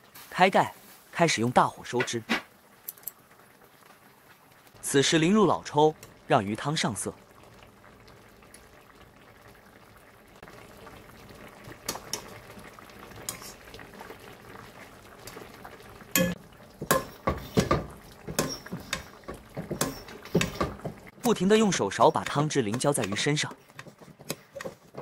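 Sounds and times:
sauce bubbling in a pan: 0:02.5 - 0:25.0
spoon clinking and scraping pan: 0:16.2 - 0:20.8.

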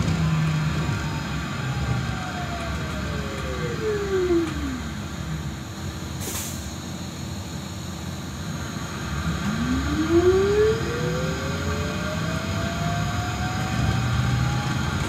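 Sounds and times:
brief hiss: 0:06.2 - 0:06.7
electric motor whine: 0:09.2 - 0:14.2.

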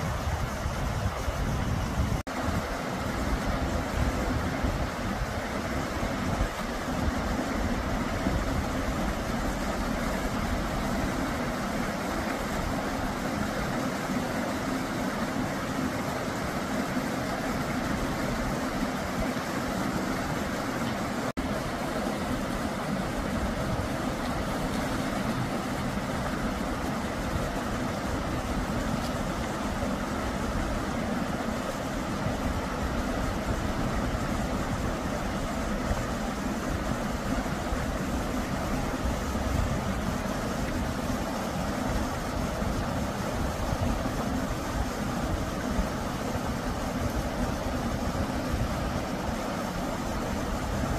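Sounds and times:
stream water rushing: 0:00.0 - 0:50.9.

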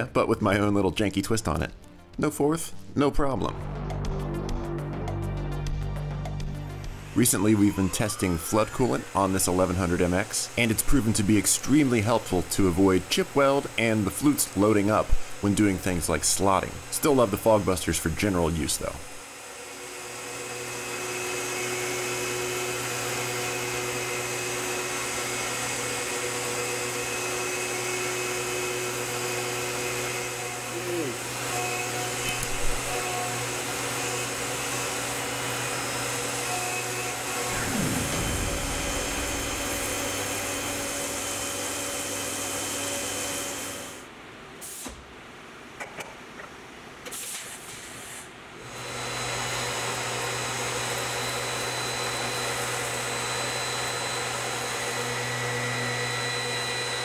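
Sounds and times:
milling machine spindle whine: 0:06.8 - 0:16.9, 0:19.2 - 0:44.0, 0:48.7 - 0:57.0
cutting and coolant spray hiss: 0:37.5 - 0:44.0.

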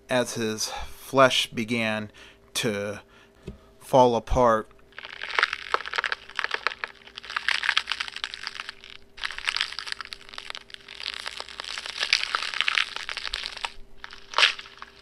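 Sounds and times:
crackling crunching bursts: 0:04.8 - 0:15.0.

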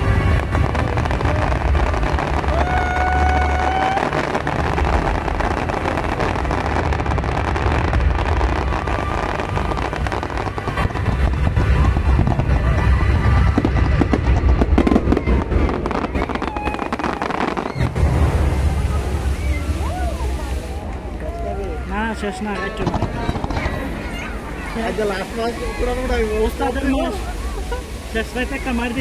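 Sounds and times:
fireworks bursts rumbling: 0:00.0 - 0:29.0
fireworks crackling: 0:00.0 - 0:29.0.

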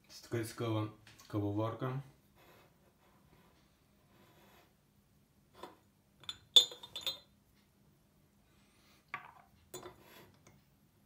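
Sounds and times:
ceramic lid clinking on stone: 0:05.6 - 0:07.3.

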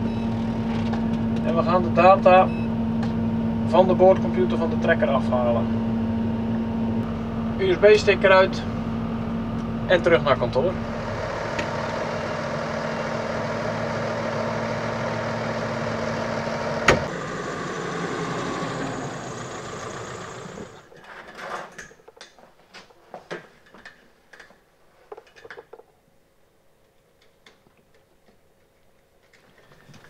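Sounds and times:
tractor diesel engine running: 0:04.2 - 0:20.9.

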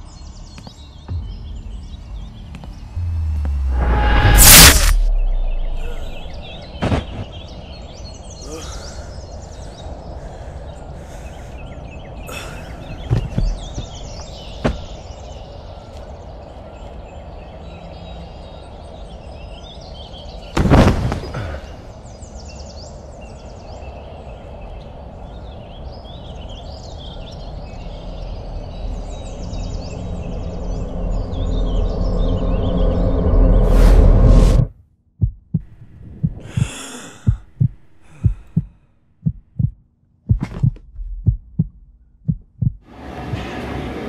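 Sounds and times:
small birds chirping: 0:00.0 - 0:03.5, 0:05.1 - 0:32.8, 0:35.2 - 0:42.8
low rumble: 0:01.1 - 0:08.2, 0:27.4 - 0:42.9
loud burst of noise: 0:03.6 - 0:06.0.

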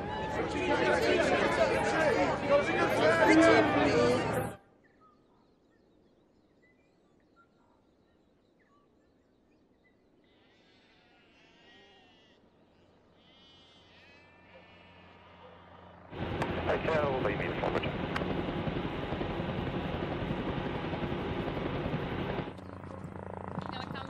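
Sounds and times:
faint sheep bleating: 0:10.3 - 0:12.5, 0:13.1 - 0:15.6.

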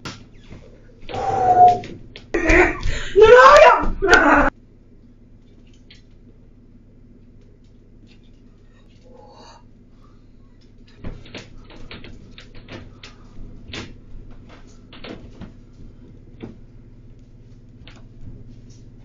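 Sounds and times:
low electrical hum: 0:00.0 - 0:19.0.

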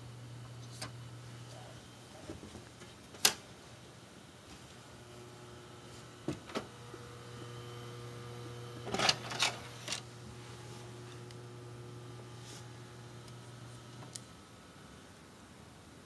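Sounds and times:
computer humming: 0:04.8 - 0:15.0.

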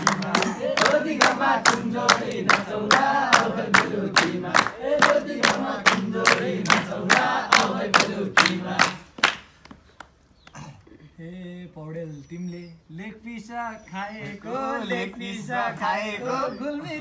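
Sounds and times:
men singing together: 0:00.0 - 0:09.0, 0:14.2 - 0:17.0
hands clapping a steady beat: 0:00.0 - 0:10.2.

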